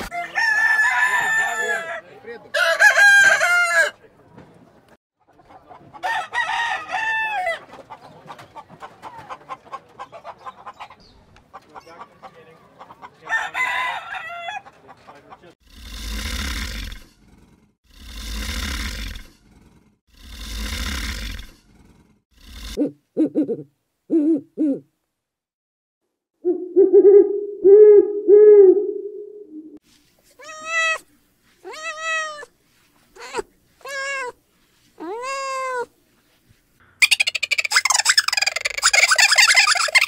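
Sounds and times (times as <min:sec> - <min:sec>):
rough breathy animal blasts: 0:15.6 - 0:17.1, 0:17.8 - 0:19.4, 0:20.1 - 0:22.8
high arched animal calls: 0:37.0 - 0:40.0.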